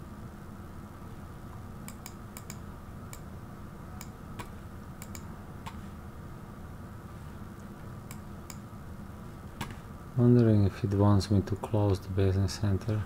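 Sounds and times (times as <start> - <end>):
steady low hum: 0.0 - 13.0
mouse and keyboard clicks: 1.9 - 3.3, 4.0 - 5.8.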